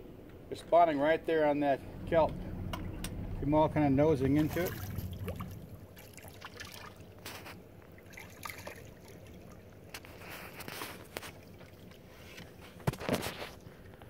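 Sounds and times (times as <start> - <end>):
trickling water: 1.8 - 12.8
fish splashing at water surface: 4.4 - 12.1.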